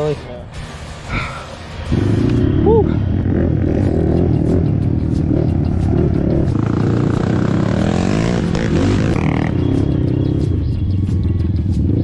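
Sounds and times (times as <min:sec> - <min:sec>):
off-road vehicle engine revving: 0:01.8 - 0:12.0.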